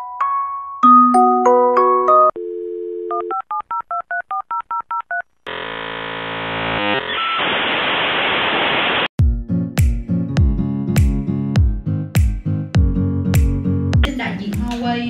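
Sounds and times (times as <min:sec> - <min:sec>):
dial tone: 0:02.3 - 0:03.5.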